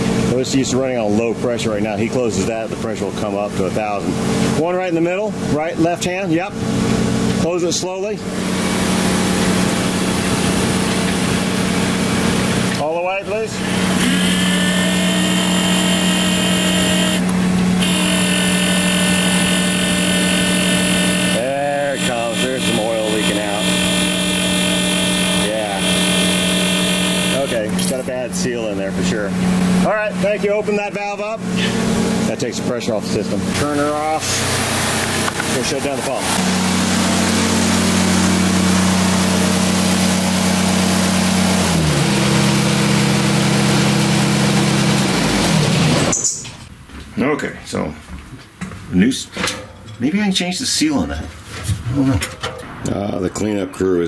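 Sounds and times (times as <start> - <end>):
hydraulic pump humming: 8.2 - 30.6
high whine: 8.7 - 30.3.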